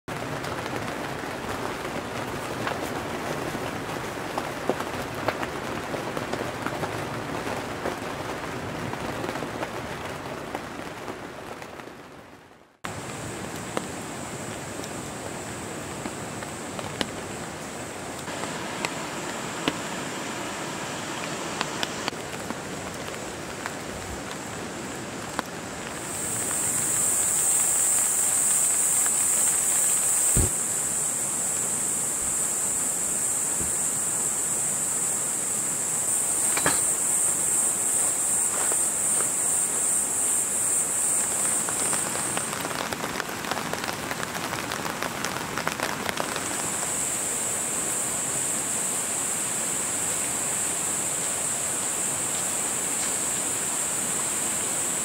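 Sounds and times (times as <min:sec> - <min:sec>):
steady rain falling: 0:00.0 - 0:55.0
loud high hiss: 0:12.9 - 0:55.0
dull thump: 0:30.3 - 0:30.6.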